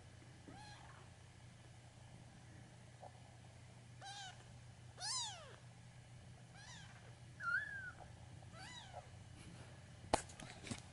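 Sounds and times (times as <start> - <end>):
kitten mewing: 4.0 - 4.4, 5.0 - 5.6.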